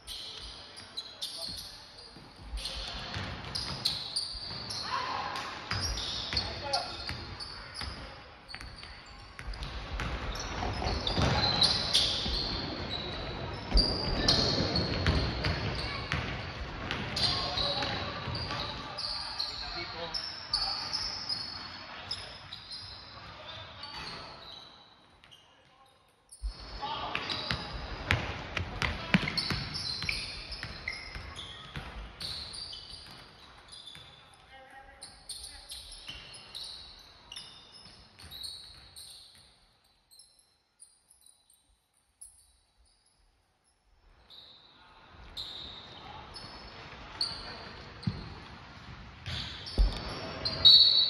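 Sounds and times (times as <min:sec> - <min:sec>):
sneakers squeaking on floor: 0:00.0 - 0:43.2, 0:44.1 - 0:51.0
basketball bouncing on court: 0:02.2 - 0:04.7, 0:05.7 - 0:13.0, 0:13.6 - 0:18.8, 0:26.4 - 0:34.2, 0:48.0 - 0:48.5, 0:49.2 - 0:50.6.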